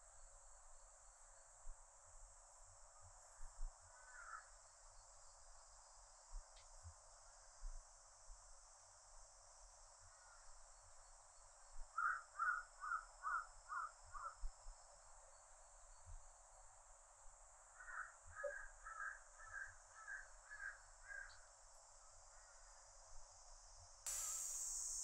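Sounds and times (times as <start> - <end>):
cicadas droning: 0.0 - 25.0
crow cawing: 4.0 - 4.5, 12.0 - 14.4, 17.8 - 21.3.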